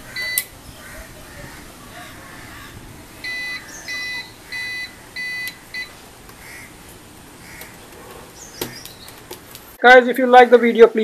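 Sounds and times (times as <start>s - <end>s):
high electronic beeps: 3.2s - 6.0s.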